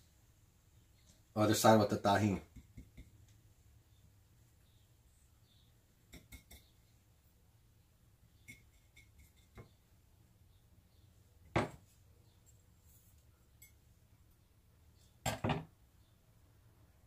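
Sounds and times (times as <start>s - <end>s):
glassware and utensils clinking: 8.4s - 9.6s
sharp knock on counter: 11.5s - 11.8s.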